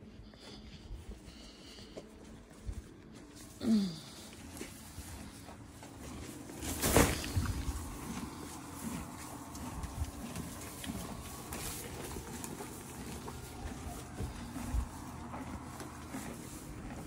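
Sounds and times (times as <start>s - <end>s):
horse chewing hay: 0.1s - 17.0s
horse blowing breath: 3.6s - 17.0s.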